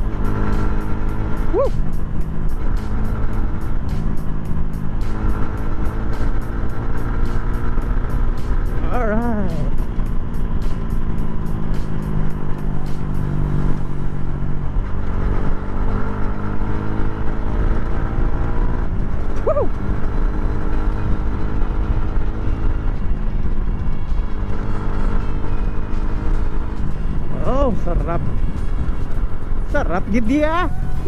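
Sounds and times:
motorcycle engine running: 0:00.0 - 0:31.0
rising and falling whoop: 0:01.5 - 0:01.8.

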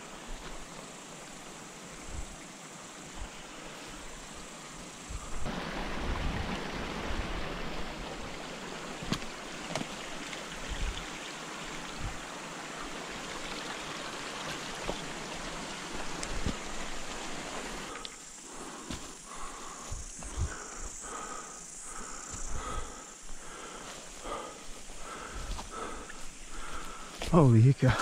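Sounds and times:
stream water over stones: 0:00.0 - 0:20.6
footsteps through undergrowth: 0:12.9 - 0:27.5.

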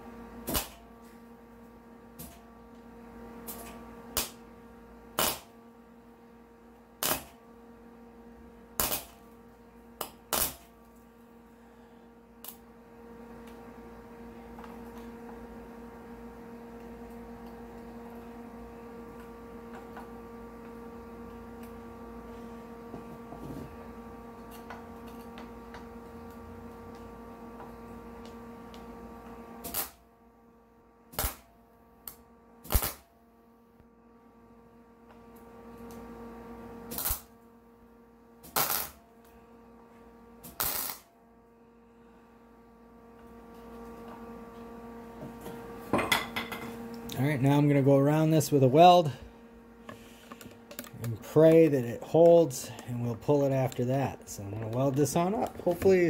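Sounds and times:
steady hum: 0:00.0 - 0:56.0
crackling welding arc: 0:00.4 - 0:00.8, 0:03.4 - 0:04.5, 0:05.1 - 0:05.6, 0:07.0 - 0:07.4, 0:08.7 - 0:09.2, 0:10.0 - 0:10.7, 0:29.6 - 0:30.0, 0:31.1 - 0:33.1, 0:36.9 - 0:37.4, 0:38.4 - 0:39.0, 0:40.4 - 0:41.1.

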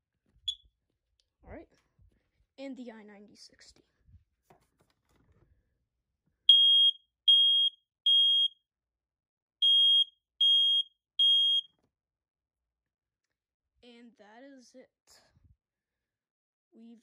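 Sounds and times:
smoke alarm beeping: 0:06.5 - 0:08.6, 0:09.6 - 0:11.7.

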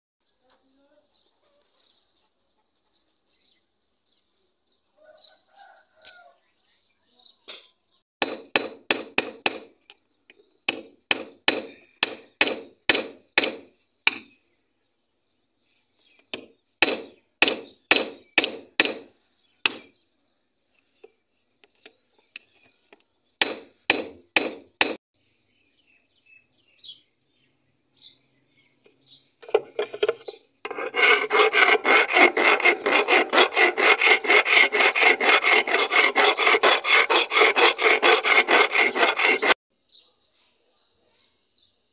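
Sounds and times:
hammer on metal: 0:08.2 - 0:10.0, 0:10.7 - 0:14.3, 0:16.4 - 0:19.1, 0:23.4 - 0:25.0
file rasping on steel: 0:10.7 - 0:14.3, 0:16.4 - 0:19.1, 0:23.4 - 0:25.0, 0:29.5 - 0:39.6.

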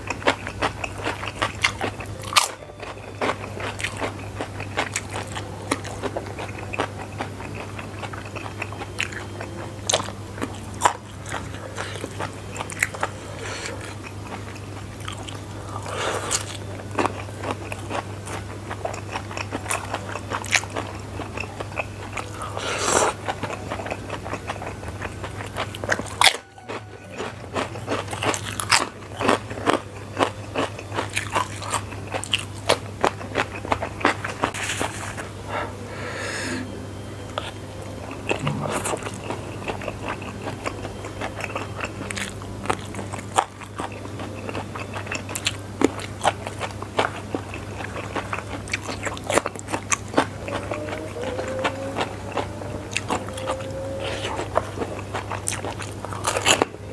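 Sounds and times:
chewing and crunching crackers: 0:00.0 - 0:35.8, 0:37.3 - 0:56.9
low hum: 0:01.6 - 0:56.9
wet mouth sounds: 0:38.2 - 0:40.3.

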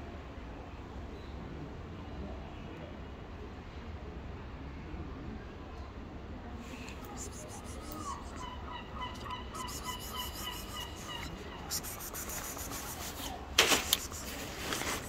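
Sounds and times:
bird calling short notes: 0:07.1 - 0:15.0.

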